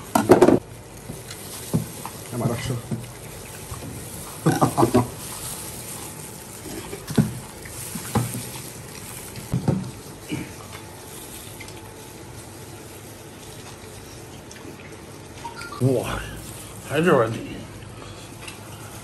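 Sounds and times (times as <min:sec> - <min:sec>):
wet chewing and sucking: 0:03.0 - 0:15.8, 0:17.7 - 0:19.0
steady background hiss: 0:15.4 - 0:19.0.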